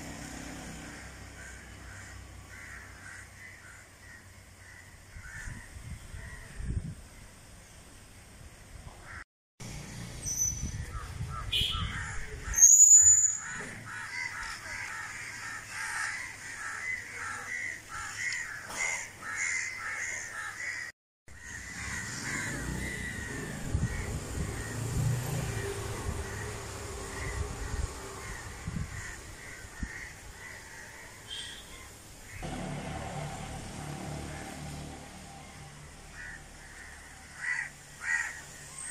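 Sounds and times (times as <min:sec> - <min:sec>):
birds calling harshly: 0:00.3 - 0:07.3, 0:09.8 - 0:32.5, 0:34.3 - 0:38.9
sharp high bird call: 0:11.5 - 0:13.5.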